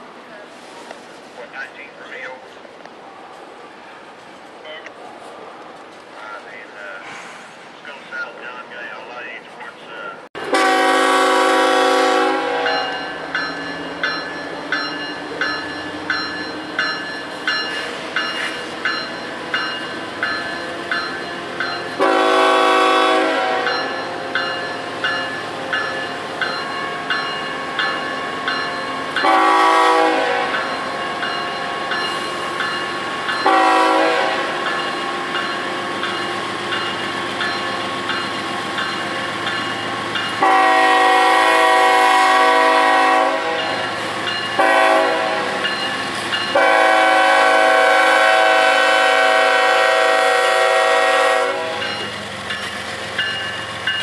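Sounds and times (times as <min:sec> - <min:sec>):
low rumble of train rolling: 0:00.0 - 0:54.0
locomotive air horn blasts: 0:10.4 - 0:13.0, 0:22.0 - 0:23.8, 0:29.2 - 0:30.6, 0:33.4 - 0:34.6, 0:40.4 - 0:43.9, 0:44.6 - 0:45.6, 0:46.5 - 0:51.9
bell ringing: 0:12.7 - 0:22.0, 0:23.7 - 0:29.3, 0:30.6 - 0:33.6, 0:43.6 - 0:44.6, 0:45.6 - 0:46.6.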